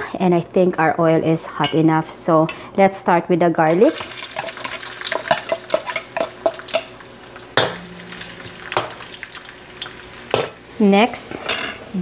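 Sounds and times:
faint sizzle: 0:03.7 - 0:12.0.

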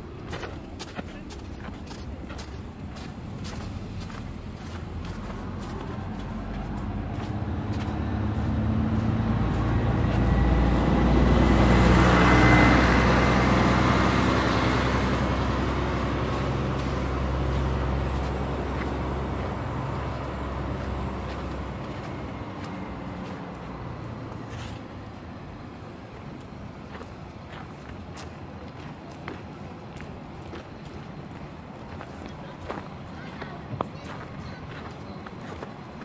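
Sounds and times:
heavy vehicle passing: 0:00.0 - 0:26.8.

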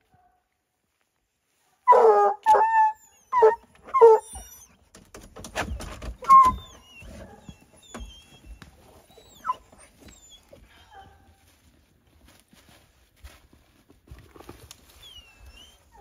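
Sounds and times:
dog barking: 0:01.8 - 0:04.2.

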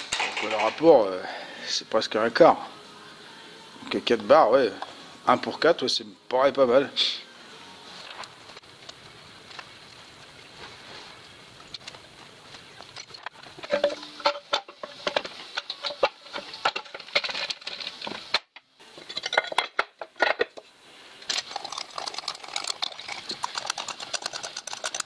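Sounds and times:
metal parts and tools clattering: 0:00.0 - 0:01.0, 0:12.9 - 0:20.6, 0:21.2 - 0:25.0.

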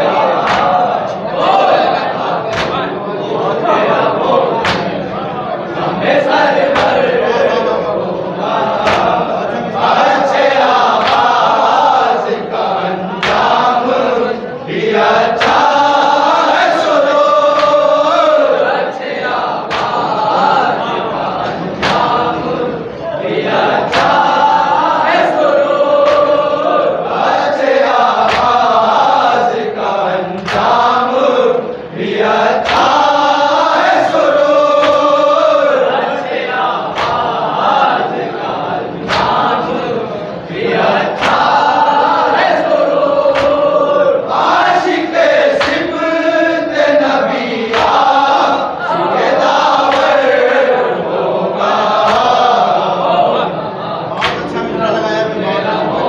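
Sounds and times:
men chanting in unison: 0:00.0 - 0:56.0
hands slapping chests: 0:00.4 - 0:00.8, 0:02.5 - 0:02.9, 0:04.6 - 0:05.0, 0:06.7 - 0:07.1, 0:08.8 - 0:09.2, 0:10.7 - 0:11.4, 0:13.2 - 0:13.6, 0:15.4 - 0:15.8, 0:17.5 - 0:18.0, 0:19.7 - 0:20.2, 0:21.8 - 0:22.2, 0:23.8 - 0:24.4, 0:26.0 - 0:26.4, 0:28.2 - 0:29.0, 0:30.4 - 0:30.9, 0:32.6 - 0:33.3, 0:34.8 - 0:35.2, 0:36.9 - 0:37.4, 0:39.0 - 0:39.6, 0:41.1 - 0:41.8, 0:43.3 - 0:43.8, 0:45.6 - 0:45.9, 0:47.7 - 0:48.4, 0:49.8 - 0:50.4, 0:52.0 - 0:52.4, 0:54.2 - 0:54.6.

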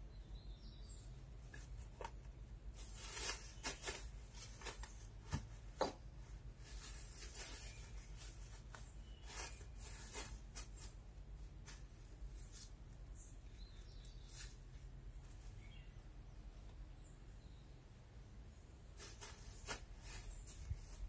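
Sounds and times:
faint bird chirps: 0:00.0 - 0:01.7, 0:07.3 - 0:10.1, 0:13.1 - 0:19.0.

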